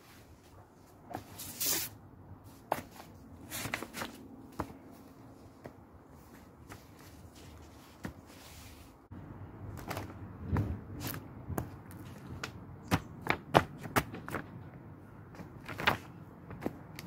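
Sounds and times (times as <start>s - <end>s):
paper rustling: 2.7s - 9.0s, 15.4s - 17.0s.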